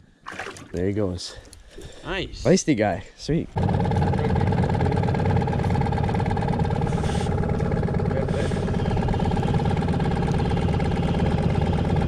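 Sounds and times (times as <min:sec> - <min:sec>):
small outboard motor running: 0:03.5 - 0:12.0.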